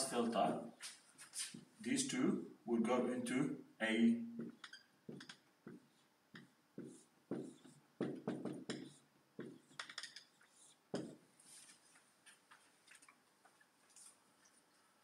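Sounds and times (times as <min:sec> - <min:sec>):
marker drawing on whiteboard: 0:04.3 - 0:12.7.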